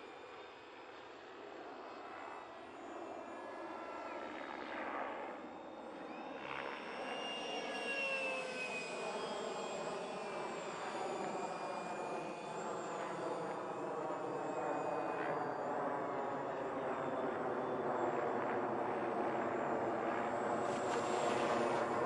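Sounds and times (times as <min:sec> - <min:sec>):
electric ducted fan whining: 0:20.3 - 0:22.0.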